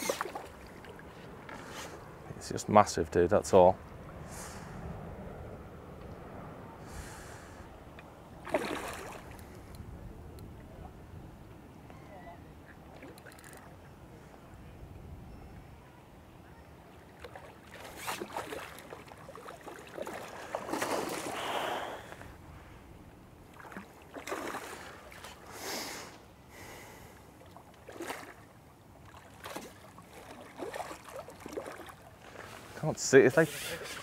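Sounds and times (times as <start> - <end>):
water splashing: 0.0 - 1.1, 8.4 - 9.7, 17.0 - 22.2, 23.4 - 25.5, 27.4 - 34.0.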